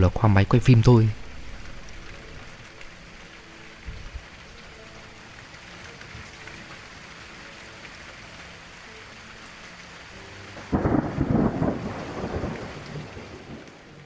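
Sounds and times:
steady rain: 0.0 - 14.0
thunder clap rumbling: 10.6 - 13.9.

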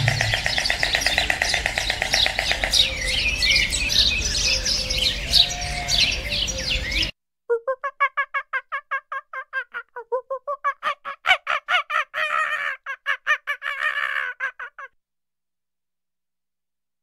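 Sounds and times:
rapid pulsed bird calls: 0.0 - 7.1
small birds chirping: 0.0 - 7.2.

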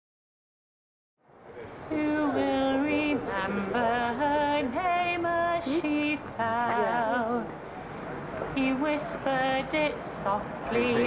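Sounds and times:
woman singing slow melody: 1.9 - 7.5, 8.6 - 11.0.

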